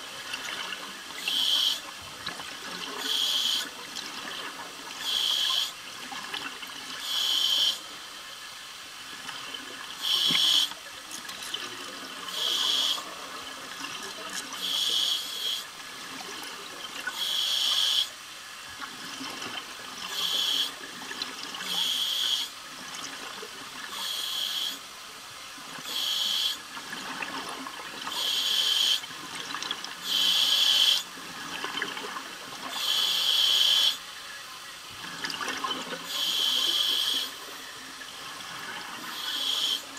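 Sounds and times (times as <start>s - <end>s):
regulator breathing hiss: 5.0s - 5.8s, 7.0s - 7.8s, 10.0s - 10.8s, 12.3s - 13.1s, 14.6s - 15.7s, 17.1s - 18.1s, 20.1s - 20.8s, 21.6s - 22.5s, 23.9s - 24.8s, 25.8s - 26.6s, 28.1s - 29.0s, 30.0s - 31.1s, 32.7s - 34.0s, 36.0s - 37.4s, 39.1s - 39.9s.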